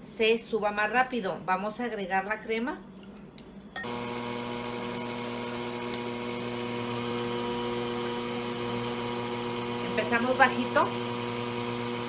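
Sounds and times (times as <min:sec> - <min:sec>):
stand mixer motor humming: 0:03.8 - 0:12.0.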